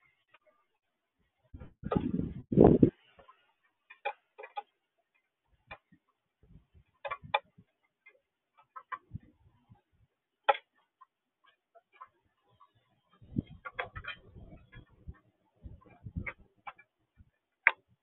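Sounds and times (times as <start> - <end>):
knocks and scraping: 1.6 - 4.8, 5.6 - 18.0.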